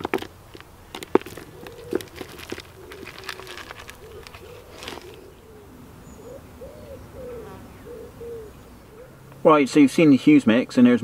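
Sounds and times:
bait rattling in bucket: 0.0s - 5.2s
pigeon cooing: 1.3s - 9.3s.

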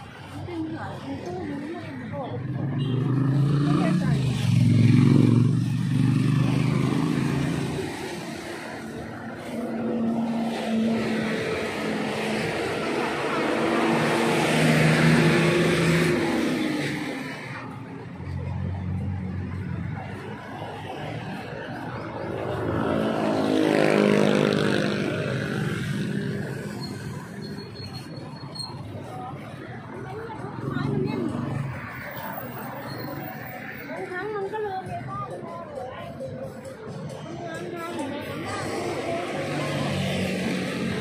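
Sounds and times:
vehicle passing by: 1.2s - 28.1s.

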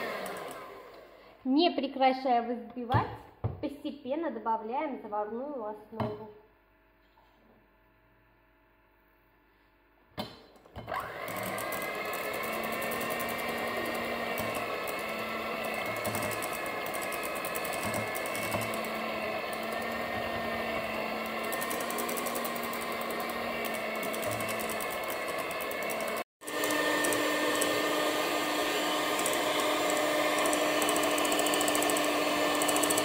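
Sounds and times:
electric hand mixer running: 0.0s - 1.2s, 10.8s - 33.0s.

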